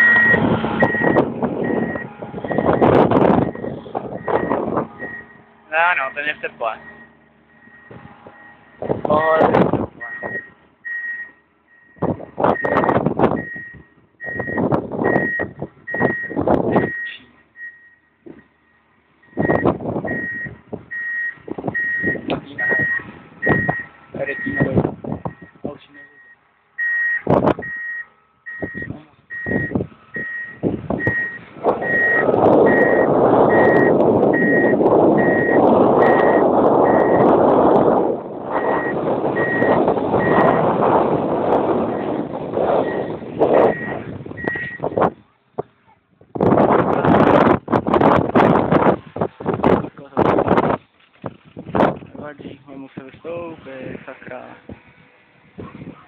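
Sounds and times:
reversing alarm beeping: 0.0s - 5.4s, 6.8s - 8.9s, 10.0s - 18.2s, 19.2s - 24.7s, 25.3s - 37.3s, 38.6s - 40.7s, 42.8s - 44.9s
loud steady rushing noise: 0.0s - 10.4s
short high warning beeps: 25.4s - 37.2s, 43.7s - 44.8s.

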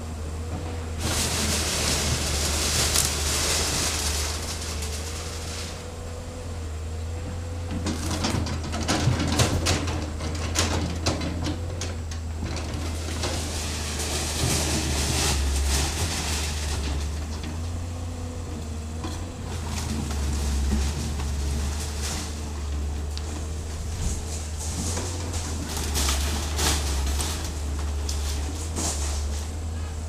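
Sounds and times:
excavator engine running: 0.0s - 30.0s
scraping and hissing: 1.0s - 5.9s, 19.2s - 29.9s
wood cracking: 1.2s - 5.8s.

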